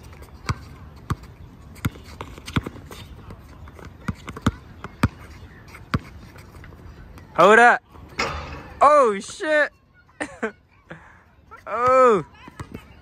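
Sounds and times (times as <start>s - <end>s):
basketball bouncing on hard court: 0.4s - 2.8s, 3.8s - 5.2s.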